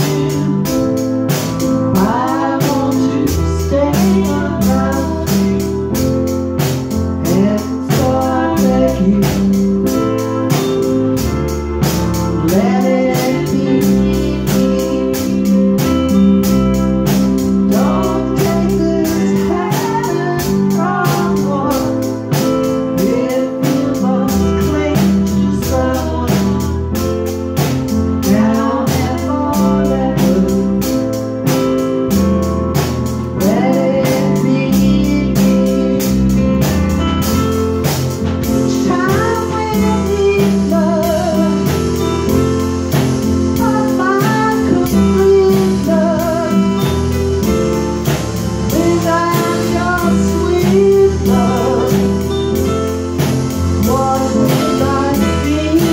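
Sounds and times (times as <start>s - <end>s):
woman singing: 0.0s - 6.2s, 7.2s - 10.6s, 12.4s - 27.2s, 28.2s - 31.2s, 33.4s - 36.4s, 38.5s - 47.1s, 48.6s - 52.7s, 53.8s - 55.9s
drum kit beat: 0.0s - 55.9s
electronic keyboard chords: 0.0s - 55.9s.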